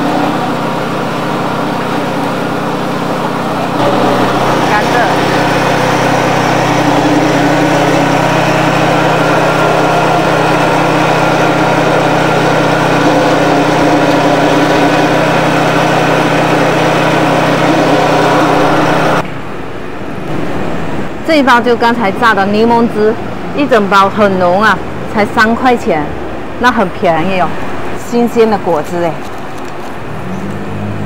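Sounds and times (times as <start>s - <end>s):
sugarcane juicer crushing cane: 0.0s - 19.2s.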